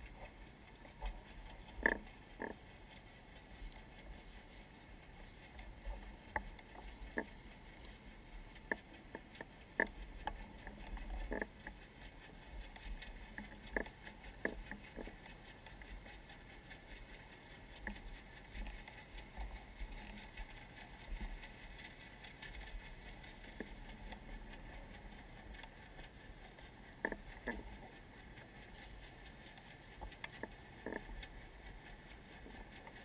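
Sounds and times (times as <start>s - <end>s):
faint low rumble: 0.0s - 33.0s
water lapping at hull: 0.0s - 33.0s
small knocks and clicks: 0.1s - 2.6s, 8.6s - 33.0s.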